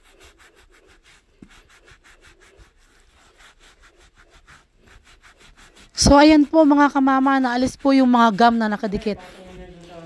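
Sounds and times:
gloved fingers scraping carpet: 0:00.0 - 0:10.0.

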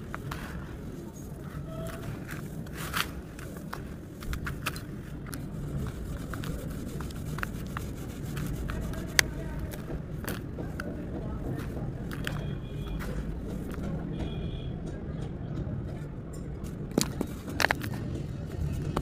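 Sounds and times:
hands crunching damp sand: 0:00.0 - 0:13.9.

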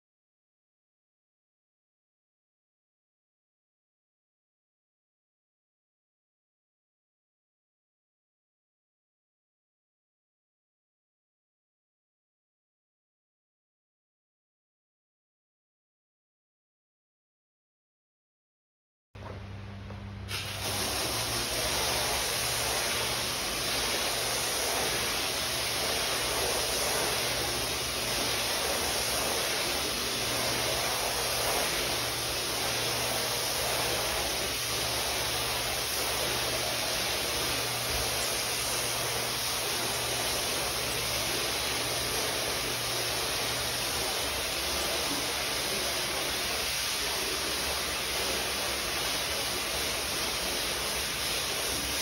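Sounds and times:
hose spraying water on rug: 0:20.3 - 0:52.0.

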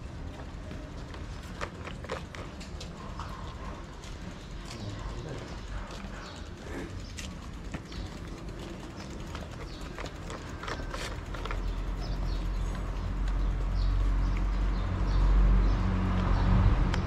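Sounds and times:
low engine rumble: 0:00.0 - 0:17.0
cat crunching dry kibble: 0:01.4 - 0:02.8.

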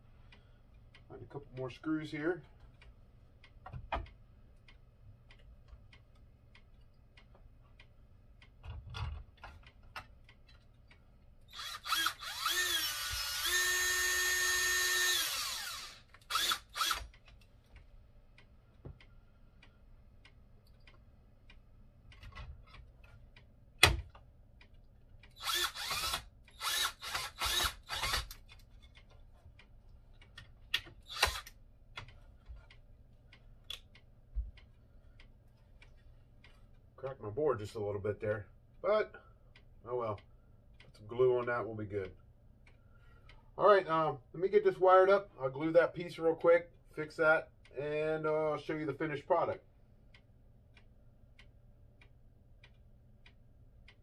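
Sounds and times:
cordless drill driving screws: 0:11.5 - 0:17.1, 0:25.4 - 0:28.4, 0:31.0 - 0:31.5.

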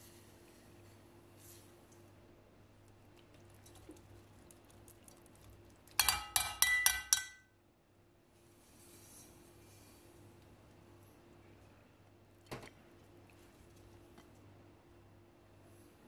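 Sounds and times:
metal strainer clinking on pot rim: 0:06.0 - 0:07.4.

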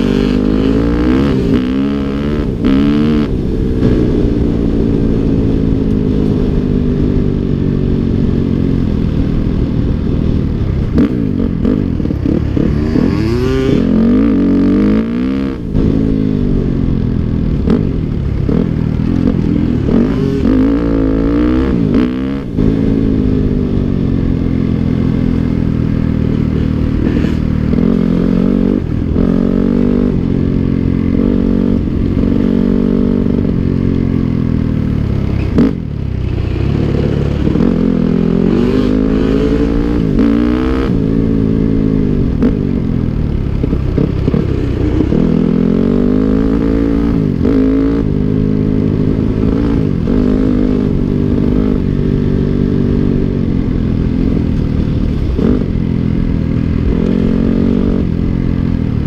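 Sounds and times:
dirt bike engine revving: 0:00.0 - 0:08.2, 0:11.0 - 0:16.9, 0:18.4 - 0:25.3, 0:26.5 - 0:34.0, 0:35.3 - 0:42.7.

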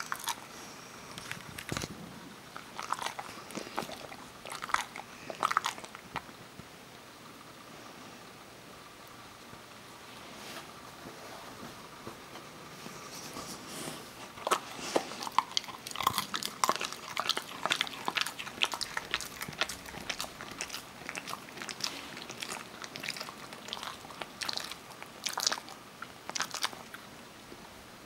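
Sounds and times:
dog crunching nuts: 0:00.0 - 0:06.3, 0:14.3 - 0:27.1.

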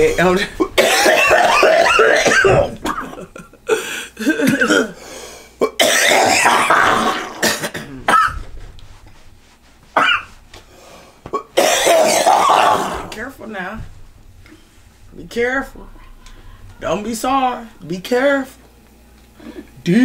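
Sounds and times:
man coughing: 0:00.0 - 0:05.0, 0:05.6 - 0:08.5, 0:10.0 - 0:10.3, 0:11.3 - 0:13.0
man clearing throat: 0:00.5 - 0:05.0, 0:05.6 - 0:08.5, 0:10.0 - 0:10.3, 0:11.3 - 0:13.1.

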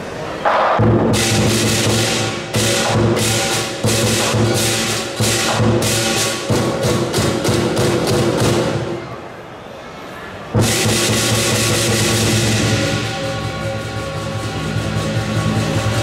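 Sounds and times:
cymbals crashing: 0:00.4 - 0:09.3, 0:10.5 - 0:16.0
big drum beating: 0:00.5 - 0:09.1, 0:10.6 - 0:16.0
gong ringing: 0:10.6 - 0:16.0.

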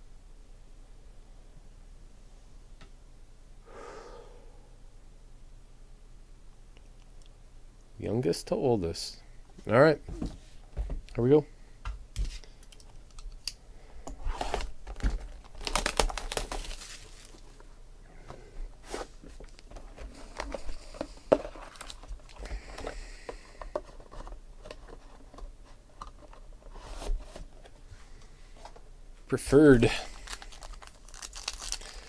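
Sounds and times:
cardboard ripping: 0:14.3 - 0:17.4, 0:30.2 - 0:32.0
cardboard sliding and scraping: 0:26.7 - 0:27.5.

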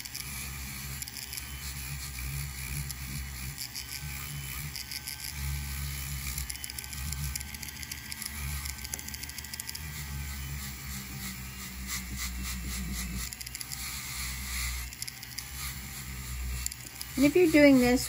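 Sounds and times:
rotary tool motor hum: 0:00.0 - 0:18.0
polishing wheel scratchy hiss: 0:07.2 - 0:18.0.

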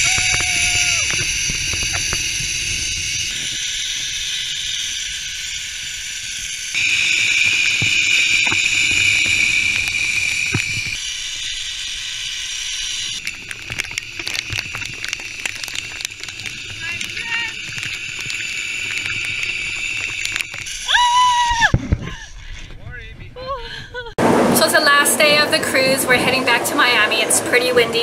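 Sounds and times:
raindrops ticking on camera: 0:00.0 - 0:03.4, 0:13.2 - 0:20.8
low wind rumble: 0:00.0 - 0:11.0, 0:13.1 - 0:28.0
zipline pulleys hissing on cable: 0:00.0 - 0:13.2, 0:15.0 - 0:22.3.

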